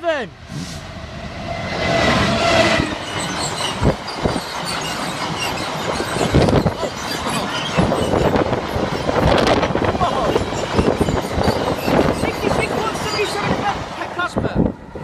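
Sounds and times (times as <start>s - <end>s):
diesel locomotive engine passing: 0.2s - 15.0s
wagon wheels rumbling and clattering: 3.1s - 14.1s.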